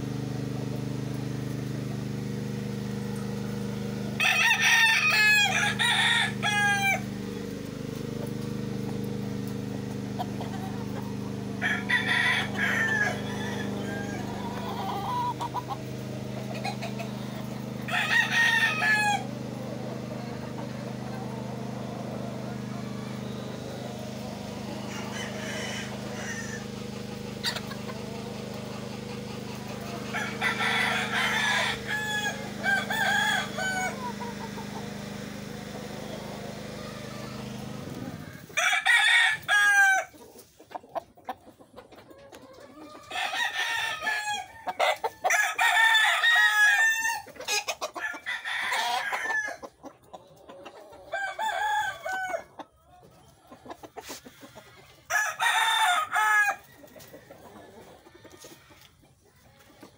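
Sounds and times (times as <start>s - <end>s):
steady low hum: 0.0s - 38.6s
roosters crowing: 0.0s - 40.8s, 42.0s - 53.0s, 53.7s - 59.9s
chickens clucking: 0.0s - 59.9s.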